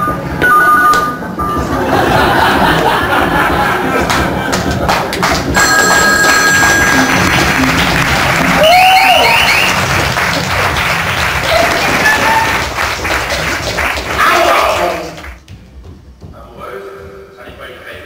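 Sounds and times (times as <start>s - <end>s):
music playing: 0.0s - 15.2s
audience applauding: 2.2s - 15.4s.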